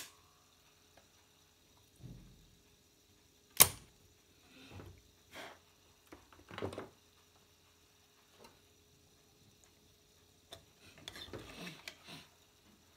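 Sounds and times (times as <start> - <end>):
sharp click: 3.6 - 3.8.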